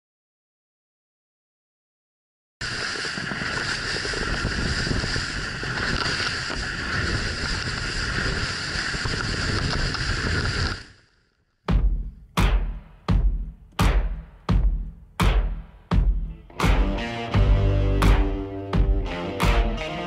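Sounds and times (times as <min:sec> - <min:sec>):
wind: 0:02.6 - 0:11.2.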